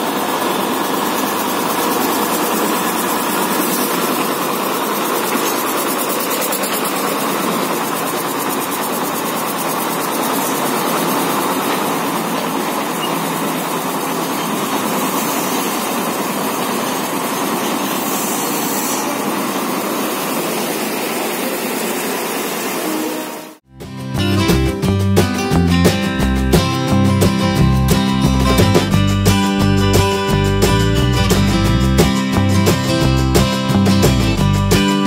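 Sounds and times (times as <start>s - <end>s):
train diesel engine droning: 0.0s - 35.0s.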